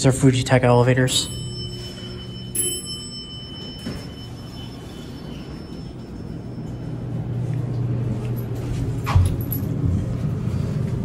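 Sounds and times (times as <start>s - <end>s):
elevator arrival chime: 0.0s - 10.4s
low steady hum: 0.0s - 11.0s
elevator doors sliding open: 2.6s - 10.6s.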